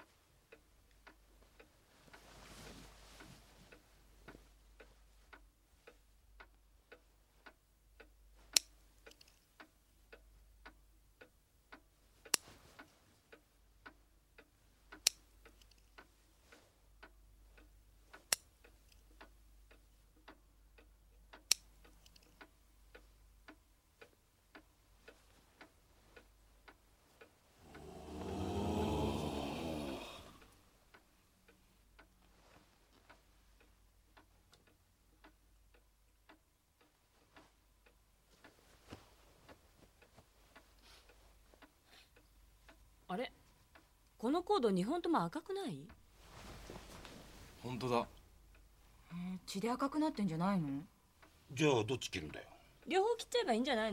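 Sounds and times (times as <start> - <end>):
mechanical ticking: 3.7 - 29.3.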